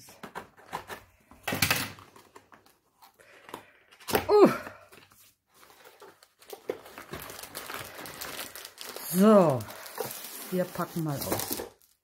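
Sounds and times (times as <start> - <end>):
packaging clicks and rustles: 0.1 - 12.0.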